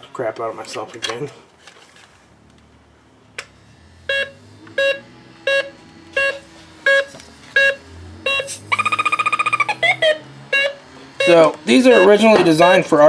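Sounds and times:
leak detector beeping: 0:03.5 - 0:13.0
fast pulsing alarm: 0:03.6 - 0:13.0.

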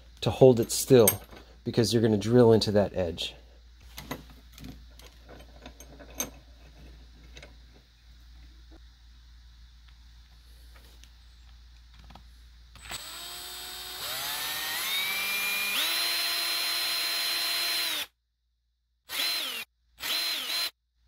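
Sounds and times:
electric drill whining: 0:12.8 - 0:18.1, 0:19.1 - 0:20.8.

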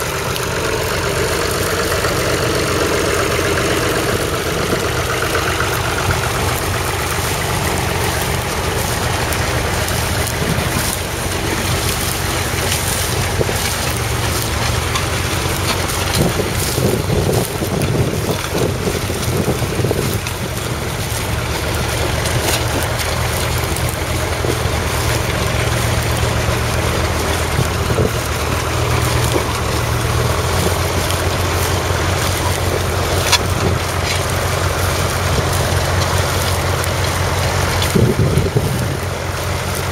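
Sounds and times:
tractor diesel engine under load: 0:00.0 - 0:39.9
wind buffeting microphone: 0:01.1 - 0:39.9.

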